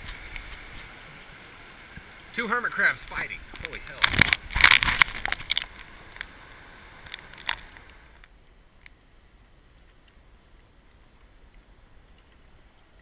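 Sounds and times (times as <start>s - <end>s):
water sloshing: 0.0s - 8.2s
small waves washing: 0.0s - 8.3s.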